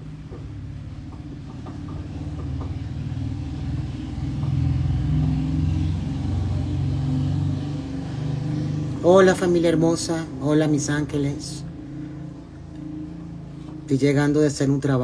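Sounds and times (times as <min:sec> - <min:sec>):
low motor rumble: 0:00.0 - 0:15.0.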